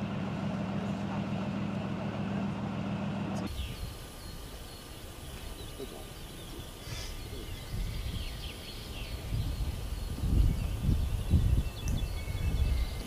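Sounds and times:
low irregular rumble: 0.0s - 5.3s
small birds chirping: 3.4s - 13.0s.

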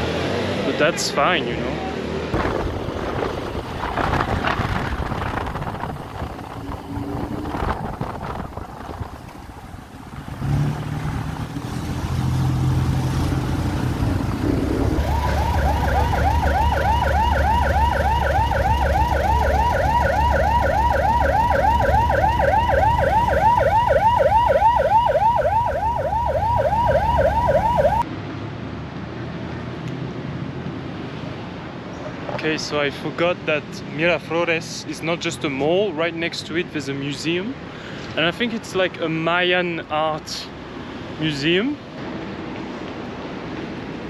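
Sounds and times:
engine and traffic rumble: 0.0s - 44.0s
emergency siren yelping: 14.4s - 28.0s.

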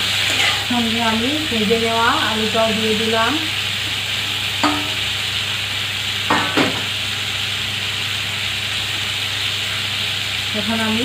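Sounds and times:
vegetables sizzling in hot oil: 0.0s - 11.0s
metal bowl clinking on pan: 4.6s - 5.1s, 6.3s - 6.9s.

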